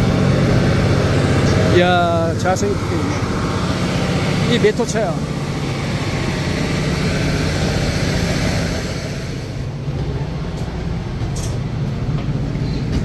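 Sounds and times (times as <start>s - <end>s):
railcar engine hum: 0.0s - 13.0s
hiss: 6.1s - 9.6s.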